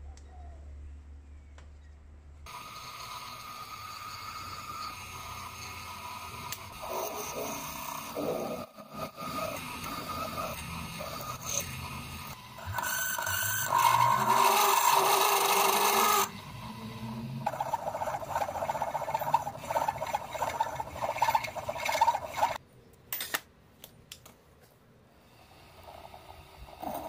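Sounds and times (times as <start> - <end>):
drill grating into metal: 2.5 - 22.6
drill spindle running: 2.5 - 22.6.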